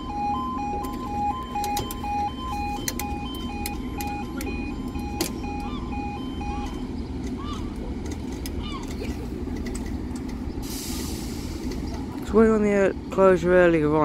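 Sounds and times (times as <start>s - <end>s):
two-tone crossing alarm: 0.0s - 7.9s
low steady rumble: 0.0s - 14.0s.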